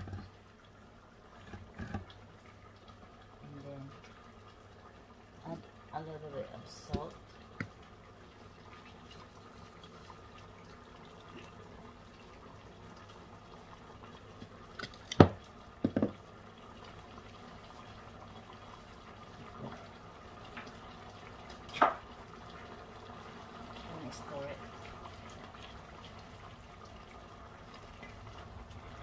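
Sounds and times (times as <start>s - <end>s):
pot simmering with faint bubbling: 0.0s - 29.0s.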